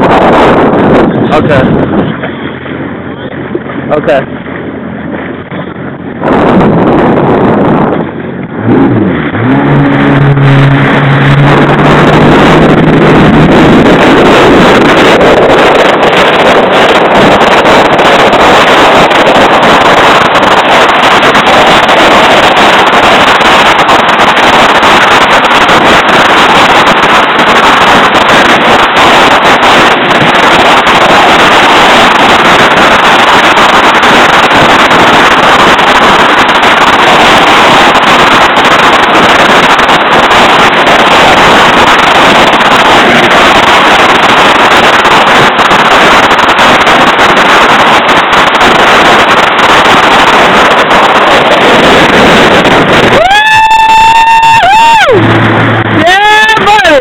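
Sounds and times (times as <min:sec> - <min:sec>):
jet ski engine: 0:00.0 - 0:57.0
water noise: 0:00.0 - 0:57.0
wind rushing on microphone: 0:00.0 - 0:57.0.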